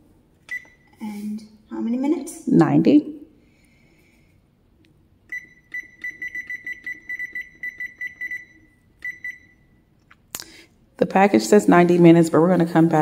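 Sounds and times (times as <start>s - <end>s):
longer beep: 5.3s - 9.8s
short high beeps: 5.3s - 9.8s.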